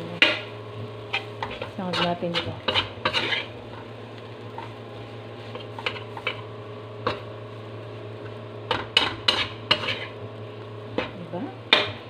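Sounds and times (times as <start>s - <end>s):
metal spatula scraping wok: 1.0s - 3.9s, 5.4s - 6.5s, 8.7s - 10.2s.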